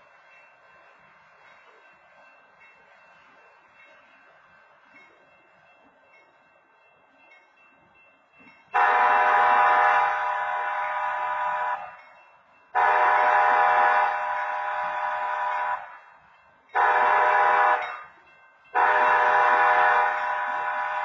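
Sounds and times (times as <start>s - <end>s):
railroad crossing horn blasts: 8.8s - 12.0s, 12.7s - 16.0s, 16.8s - 18.1s, 18.7s - 21.0s.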